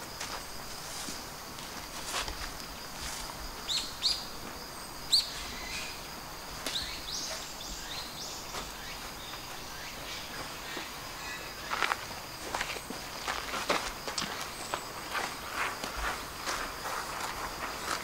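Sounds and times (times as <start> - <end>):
faint high insect drone: 0.0 - 18.0
small birds chirping: 3.6 - 12.1.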